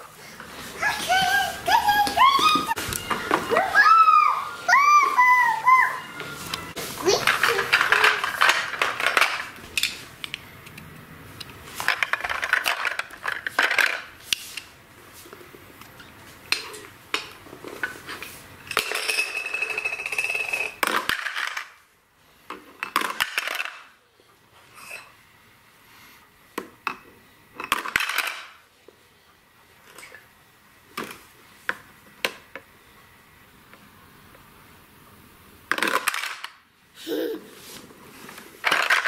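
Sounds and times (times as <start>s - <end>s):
plastic blocks clattering: 7.1s - 10.0s, 11.8s - 14.2s, 18.7s - 21.8s, 22.8s - 24.0s, 27.7s - 28.6s, 35.7s - 36.6s, 38.6s - 39.0s.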